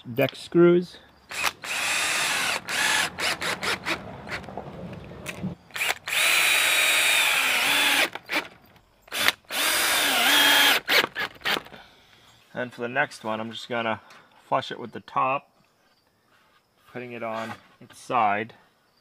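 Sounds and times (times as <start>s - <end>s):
cordless drill driving screws: 1.3s - 4.5s, 5.3s - 11.7s, 17.3s - 17.6s.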